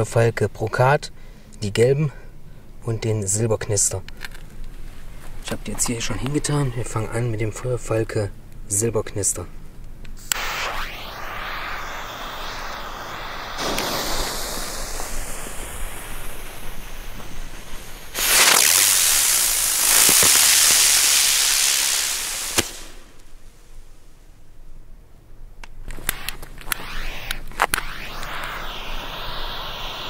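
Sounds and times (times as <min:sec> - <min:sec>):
sharp firework crack: 0:10.2 - 0:24.0, 0:26.0 - 0:30.0
dense firework crackle: 0:10.2 - 0:24.2, 0:26.0 - 0:30.0
firework hiss with sweeping tone: 0:10.2 - 0:24.3, 0:26.0 - 0:30.0.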